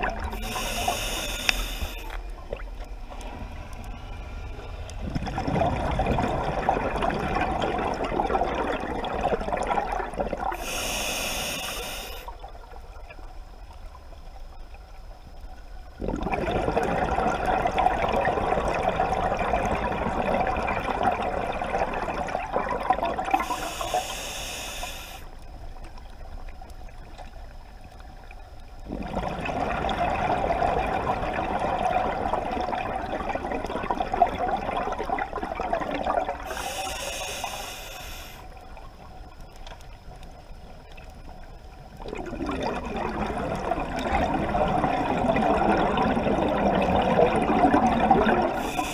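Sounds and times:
regulator inhalation hiss: 0.3 - 2.2, 10.6 - 12.3, 23.4 - 25.3, 36.5 - 38.5, 48.6 - 48.9
bubbling regulator exhalation: 16.0 - 25.2, 28.8 - 38.4, 42.0 - 48.9.

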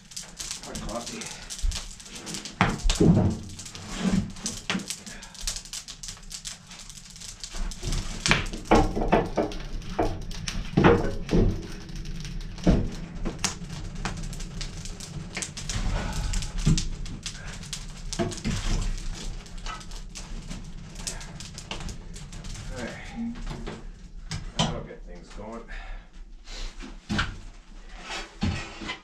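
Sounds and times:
fire crackling: 0.0 - 28.8
logs knocking into wood stove: 0.1 - 6.5, 7.1 - 20.0.

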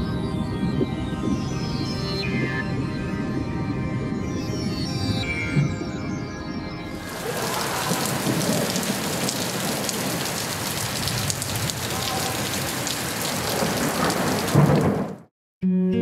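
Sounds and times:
rain falling on pavement: 7.1 - 15.3.

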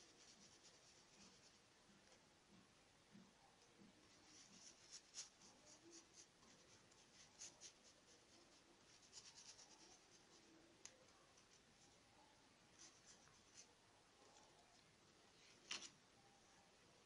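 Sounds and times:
paintbrush dabbing through stencil: 0.0 - 1.8, 3.8 - 14.4.

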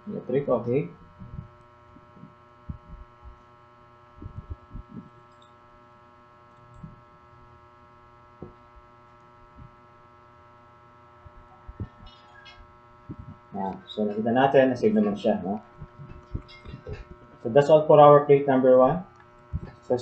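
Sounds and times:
steady electrical hum: 0.0 - 20.0
soft low bumps: 1.0 - 3.5, 4.1 - 5.2, 11.2 - 17.5.

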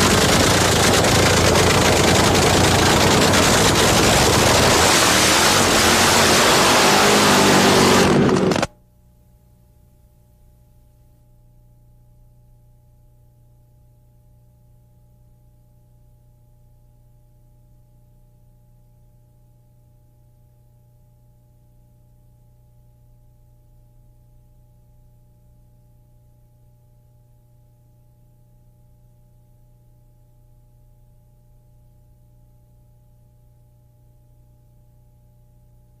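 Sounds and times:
low electrical hum: 8.7 - 36.0.

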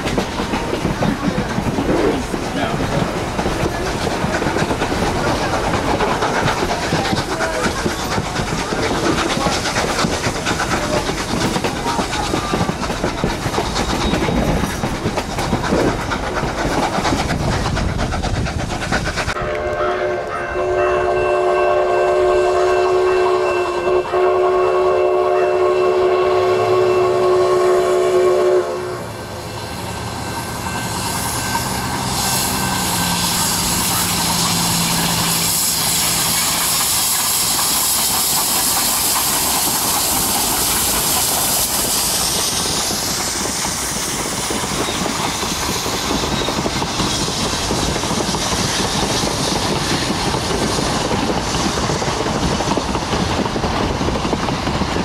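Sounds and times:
locomotive running noise: 0.0 - 55.0
train wheels clickety-clacking: 0.0 - 55.0
wind rushing: 12.3 - 19.5
steam whistle chord: 19.4 - 29.1.

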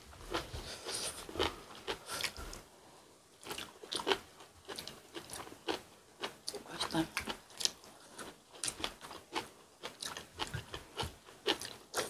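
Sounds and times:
chewing and crunching: 3.4 - 12.0.

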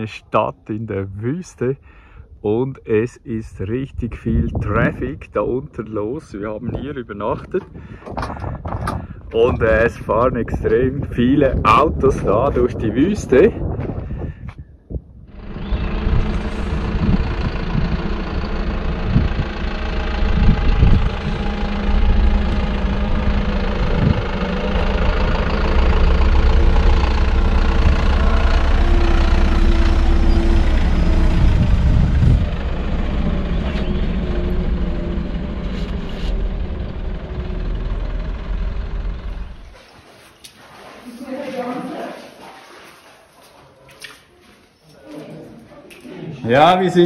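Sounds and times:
truck diesel engine running: 15.3 - 39.8.

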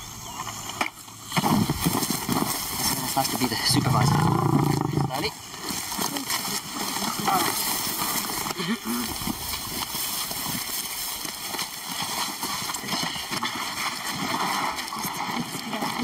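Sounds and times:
footsteps in dry grass: 0.5 - 4.7, 5.4 - 15.8
rustling in dry grass: 1.1 - 15.5
indistinct low voices: 2.8 - 5.4.

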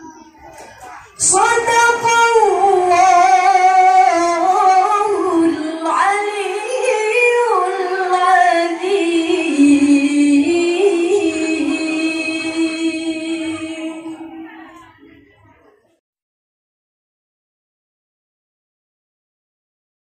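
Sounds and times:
woman chanting melodic recitation: 1.1 - 15.0.

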